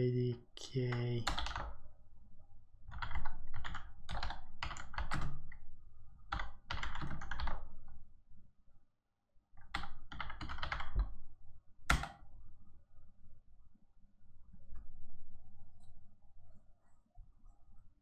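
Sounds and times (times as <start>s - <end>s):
computer keyboard typing: 0.8s - 1.8s, 2.9s - 5.6s, 6.3s - 7.8s, 9.6s - 11.2s.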